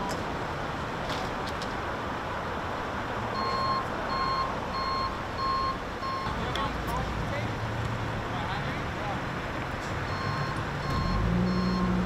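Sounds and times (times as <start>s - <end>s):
reversing alarm beeps: 3.4s - 6.3s, 10.1s - 11.9s.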